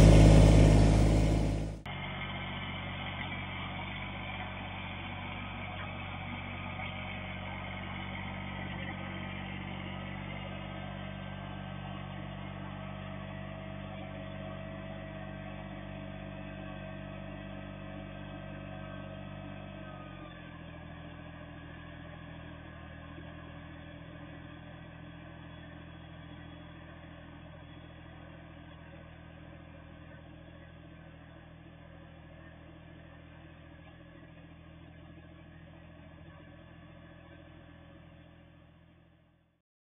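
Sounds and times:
thin whine: 0:00.0 - 0:01.8
tractor diesel engine running: 0:00.0 - 0:38.2.

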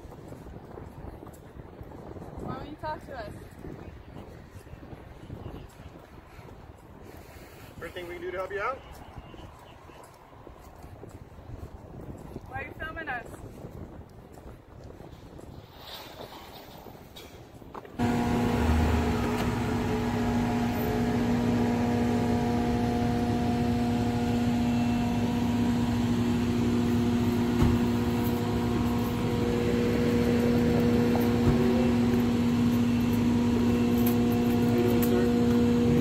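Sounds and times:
steady machine hum: 0:18.0 - 0:36.0.

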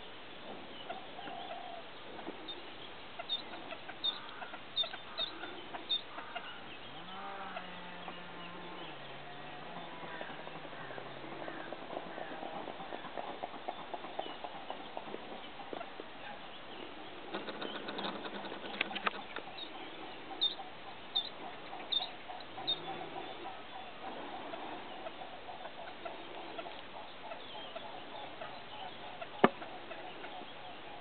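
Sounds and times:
steady background hiss: 0:00.0 - 0:31.0
bird chirps: 0:02.5 - 0:10.7, 0:16.3 - 0:24.2
rapid clicking: 0:17.3 - 0:19.2.

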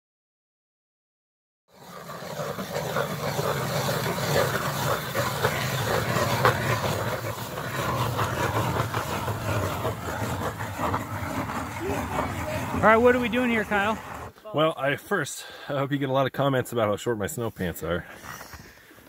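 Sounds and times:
ice auger scraping through ice: 0:01.7 - 0:14.4.

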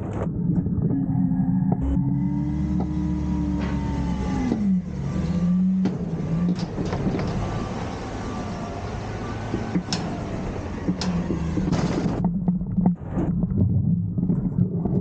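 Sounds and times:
garbage truck engine revving: 0:00.3 - 0:12.3.

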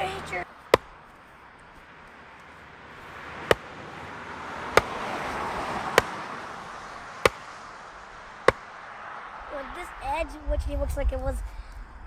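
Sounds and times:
sledgehammer striking wooden post: 0:00.7 - 0:01.0, 0:03.5 - 0:03.7, 0:04.7 - 0:05.1, 0:05.9 - 0:06.2, 0:07.2 - 0:07.5, 0:08.4 - 0:08.7.

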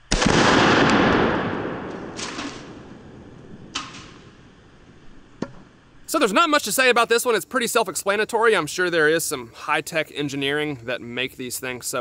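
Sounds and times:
pistol shot: 0:00.0 - 0:04.3.

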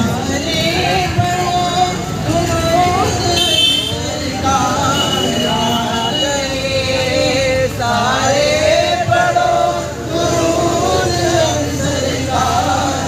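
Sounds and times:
male voices chanting: 0:00.0 - 0:13.0.

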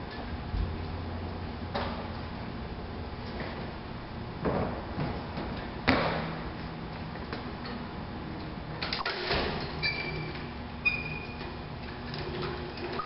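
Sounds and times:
short high squeaks: 0:09.8 - 0:11.4.

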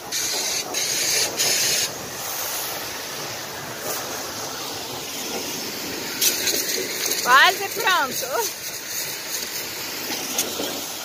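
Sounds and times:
pressure washer jet hissing: 0:00.0 - 0:11.0
steady rush of noise: 0:00.0 - 0:11.0.

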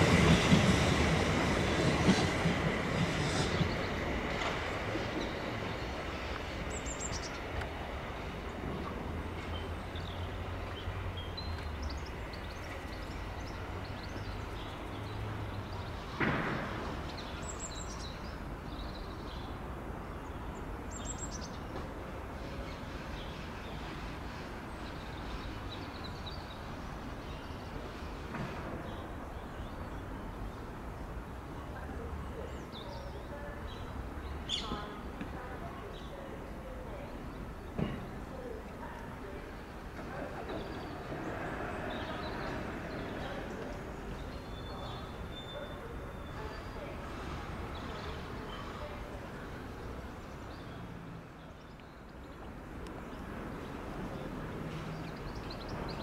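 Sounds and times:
birds chirping: 0:00.0 - 0:08.7
train sound: 0:00.0 - 0:56.0.

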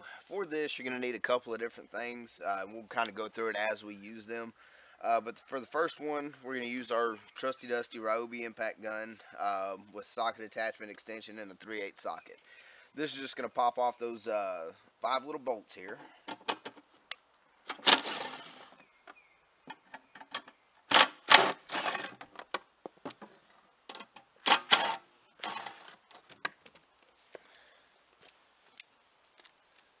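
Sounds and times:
impact gun rattling: 0:17.7 - 0:18.4, 0:19.7 - 0:22.6.

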